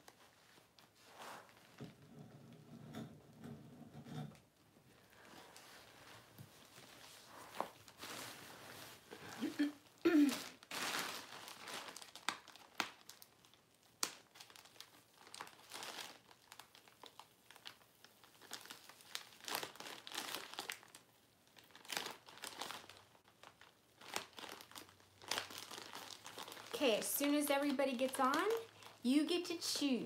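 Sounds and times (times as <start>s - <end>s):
plastic mailer crinkling: 10.3s - 29.5s.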